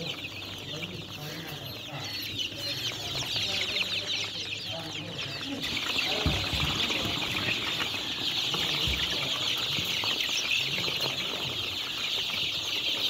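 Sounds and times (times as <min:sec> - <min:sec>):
chicks peeping: 0:00.0 - 0:13.0.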